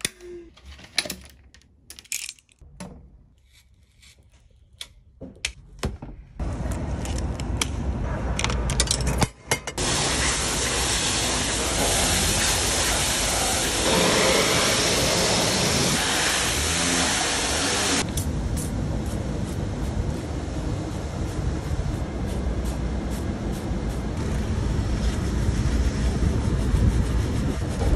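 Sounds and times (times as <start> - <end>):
pressure washer motor droning: 9.8 - 18.0
water jet hissing: 9.8 - 18.0.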